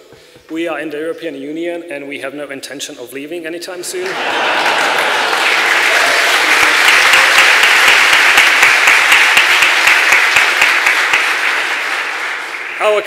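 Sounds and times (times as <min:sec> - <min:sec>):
audience applauding: 0:04.0 - 0:13.0.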